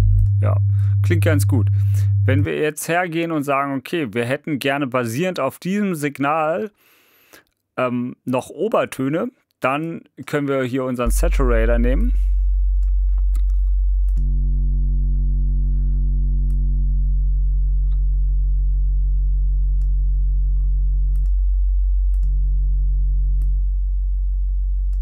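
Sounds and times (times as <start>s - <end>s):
distorted sub-bass tone: 0.0s - 2.6s, 11.1s - 25.0s.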